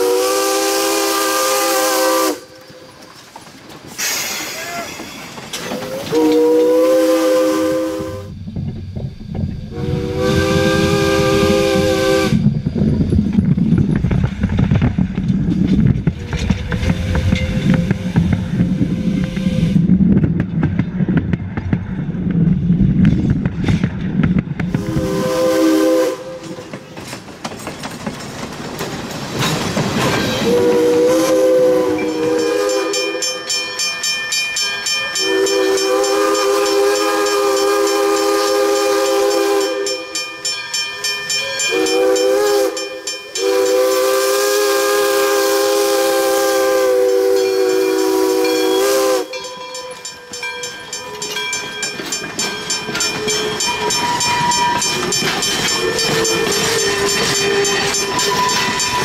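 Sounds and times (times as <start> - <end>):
steam whistle blasts: 0.0 - 3.0, 5.8 - 8.4, 9.7 - 12.6, 18.9 - 19.8, 24.8 - 26.6, 30.4 - 33.5, 35.1 - 40.3, 41.4 - 49.9, 53.2 - 59.0
train wheels rumbling overhead: 0.0 - 59.0.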